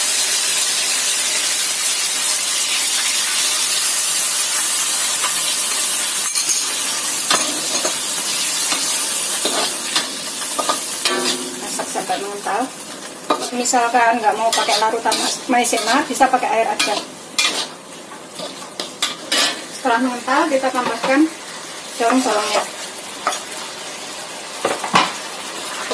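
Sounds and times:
chicken sizzling in a wok: 0.0 - 25.9
metal spatula scraping pan: 6.3 - 12.3, 14.3 - 17.8, 18.4 - 19.8.

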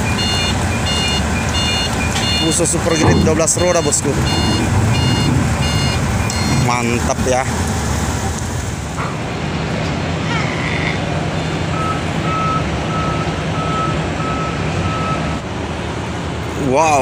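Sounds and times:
truck reversing alarm beeps: 0.0 - 7.0, 11.6 - 15.4
truck engine running: 0.0 - 10.2.

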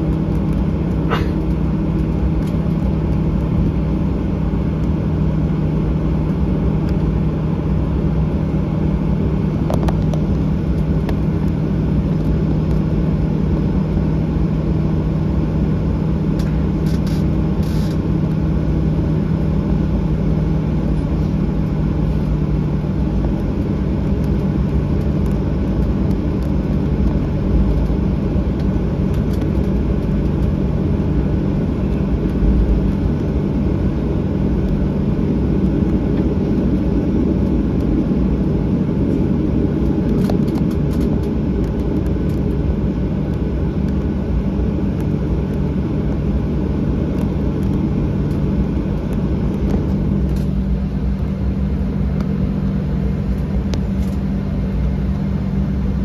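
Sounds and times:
aircraft engines low hum: 0.0 - 56.0
cabin rumble: 0.0 - 56.0.

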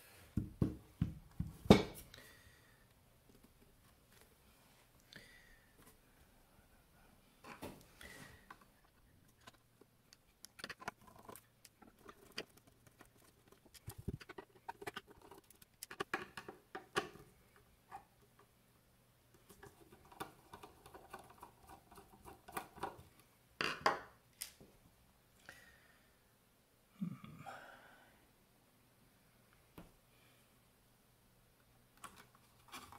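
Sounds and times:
light clicks taps and scrapes: 8.4 - 18.5, 19.3 - 23.3.

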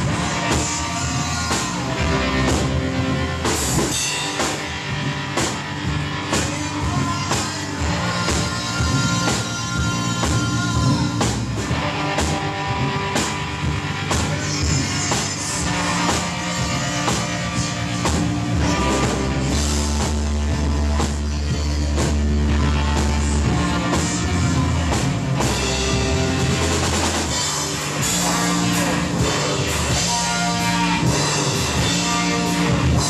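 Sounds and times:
rock band playing: 0.0 - 33.0
deep bass note: 15.7 - 33.0.

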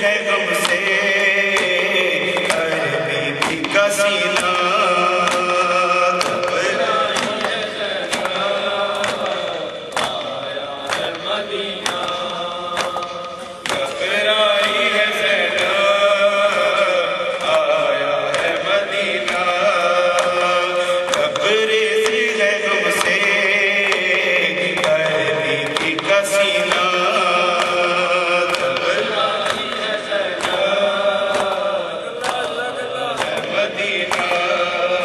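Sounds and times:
man chanting into microphone: 0.0 - 35.0
sharp rhythmic beats: 0.0 - 35.0.

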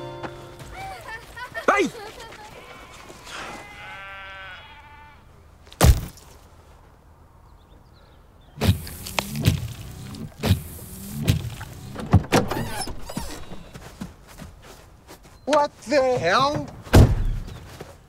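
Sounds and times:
sheep bleating: 1.6 - 5.3
wet splat on windscreen: 8.6 - 11.9.

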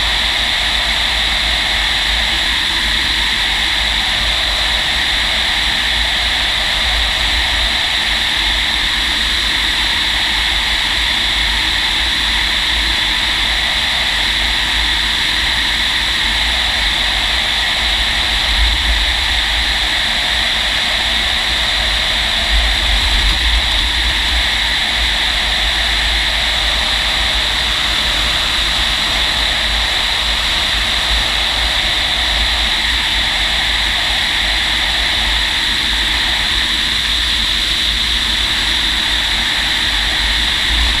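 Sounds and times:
air rushing around canopy: 15.6 - 41.0
low buffeting rumble: 16.6 - 32.8, 39.7 - 41.0.

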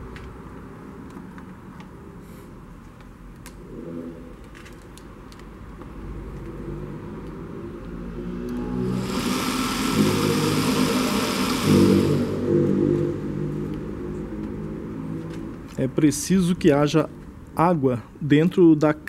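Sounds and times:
motor and pump humming: 8.8 - 12.8
loud hissing rush: 8.9 - 12.4.

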